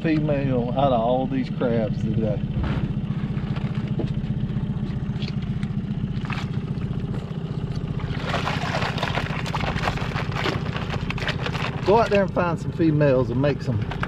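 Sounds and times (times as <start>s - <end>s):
outboard motor idling: 0.0s - 14.0s
crabs splashing into water: 6.0s - 7.0s, 7.9s - 12.1s
crabs clattering in plastic basket: 8.1s - 12.3s.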